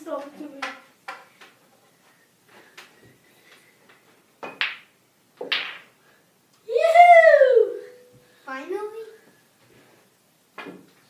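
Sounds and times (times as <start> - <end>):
pool balls clicking: 4.4 - 6.0.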